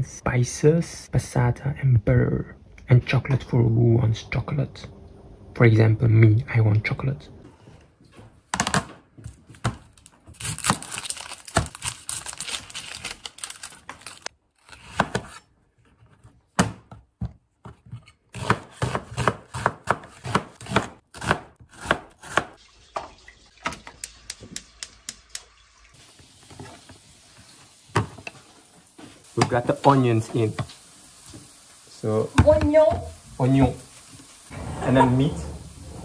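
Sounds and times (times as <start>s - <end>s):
knife chopping on a cutting board: 16.6s - 22.6s.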